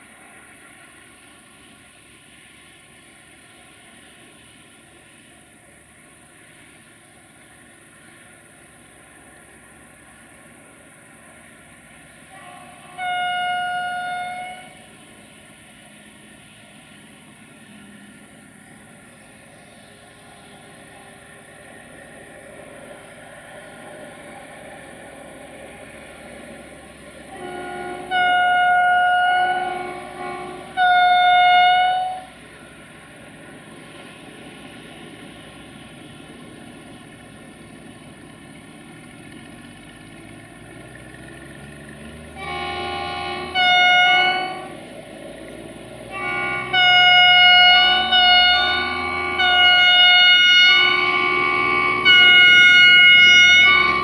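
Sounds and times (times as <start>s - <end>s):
locomotive engine rumble: 0.0s - 54.0s
locomotive air horn blasts: 12.3s - 14.9s, 27.3s - 32.4s, 42.3s - 45.0s, 46.0s - 54.0s.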